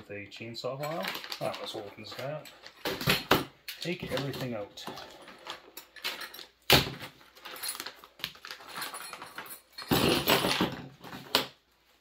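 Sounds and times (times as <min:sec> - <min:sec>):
small metal parts clinking: 0:00.8 - 0:06.6, 0:07.3 - 0:10.8
plastic bag crinkling: 0:01.0 - 0:02.8.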